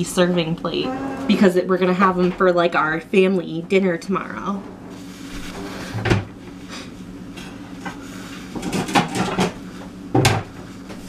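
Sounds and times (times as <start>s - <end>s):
dishes clinking and knocking: 8.6s - 9.6s.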